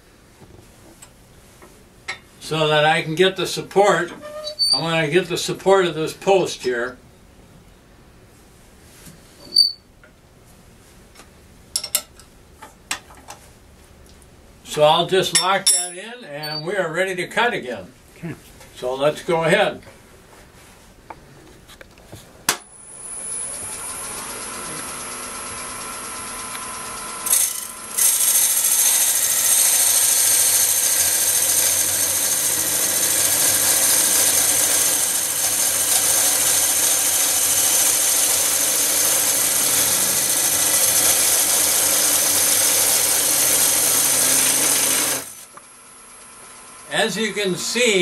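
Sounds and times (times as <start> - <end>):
wood lathe running: 22.9 - 48.0
cutter hissing into wood: 26.5 - 45.5.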